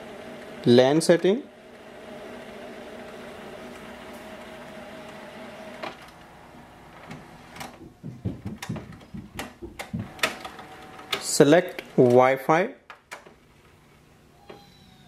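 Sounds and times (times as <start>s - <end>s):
printer mechanism humming: 0.0s - 12.4s
sharp clicks and soft knocks: 7.0s - 12.3s, 12.9s - 13.8s.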